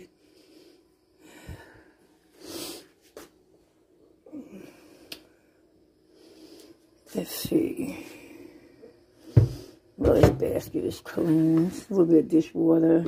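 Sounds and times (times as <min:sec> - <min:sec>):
woman breathing: 0:00.1 - 0:03.1, 0:04.2 - 0:07.0, 0:07.8 - 0:10.0
woman speaking: 0:07.1 - 0:08.2, 0:10.0 - 0:13.0.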